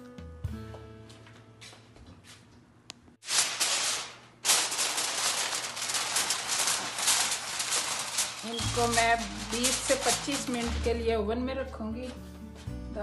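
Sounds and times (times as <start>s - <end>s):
aluminium foil crinkling: 3.2s - 11.1s.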